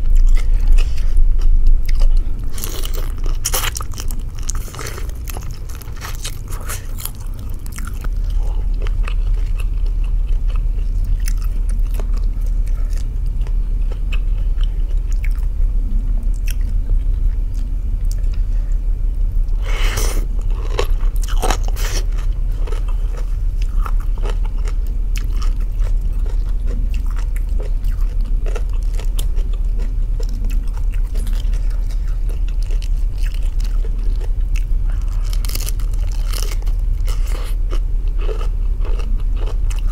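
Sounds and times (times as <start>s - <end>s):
steady low hum: 0.0s - 39.9s
slurping and chewing noodles: 1.8s - 15.4s, 19.6s - 39.9s
crunching bites: 20.0s - 39.8s.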